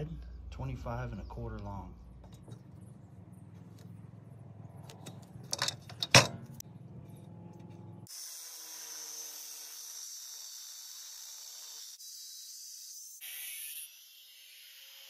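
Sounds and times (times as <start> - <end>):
angle grinder cutting steel: 8.0 - 15.0.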